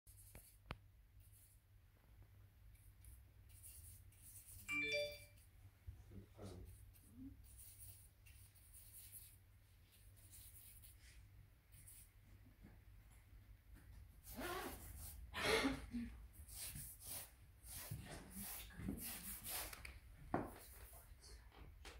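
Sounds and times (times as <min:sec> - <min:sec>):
brief pitched tone: 0:04.7 - 0:05.4.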